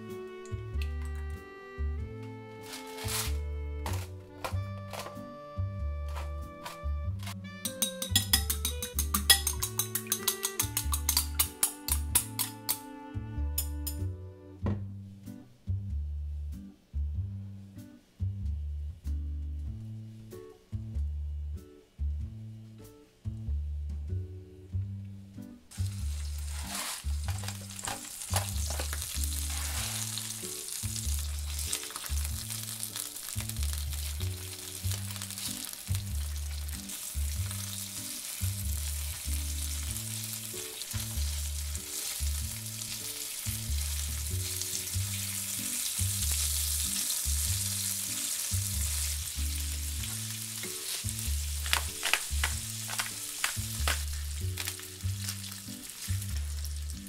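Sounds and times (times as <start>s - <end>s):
background music bass line: 0.0s - 57.0s
tongs scraping a pan: 6.1s - 12.8s, 26.1s - 30.4s
fish sizzling in hot oil: 25.7s - 57.0s.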